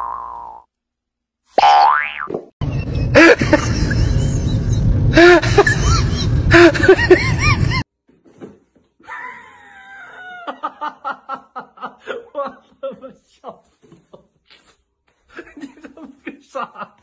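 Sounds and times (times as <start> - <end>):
person laughing: 2.8 - 7.8, 9.0 - 14.7, 15.3 - 17.0.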